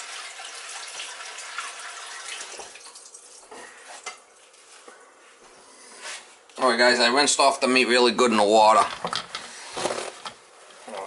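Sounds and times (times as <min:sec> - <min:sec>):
kitchen tap running: 0:00.0 - 0:04.2.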